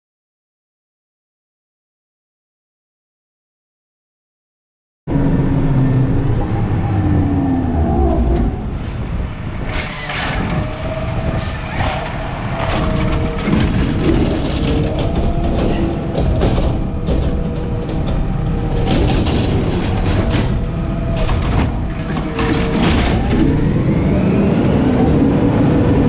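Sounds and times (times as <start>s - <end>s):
diesel engine rumble: 5.1s - 26.0s
hydraulic whine: 5.1s - 26.0s
metal squeals and clanks: 5.8s - 23.4s.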